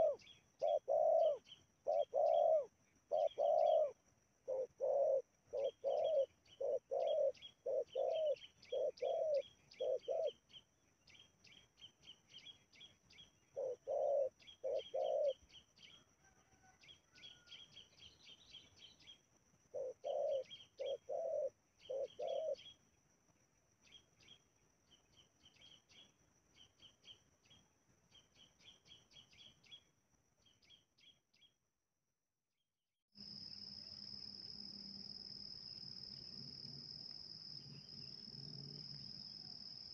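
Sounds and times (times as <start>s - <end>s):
dove cooing: 0.0s - 10.4s, 13.5s - 15.4s, 19.7s - 22.7s
steady high-pitched hum: 0.0s - 16.2s, 16.8s - 31.2s, 33.2s - 39.9s.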